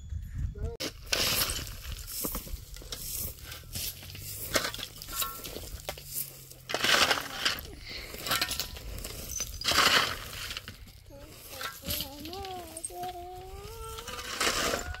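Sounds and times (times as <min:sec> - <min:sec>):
tools and bricks clinking: 0:00.8 - 0:15.0
rough scrapes: 0:00.9 - 0:15.0.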